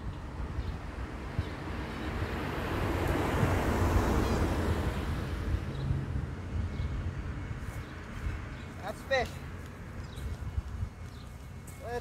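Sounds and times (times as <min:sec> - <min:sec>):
wind rumbling on microphone: 0:00.0 - 0:08.8, 0:09.4 - 0:11.7
car passing by: 0:01.1 - 0:06.6.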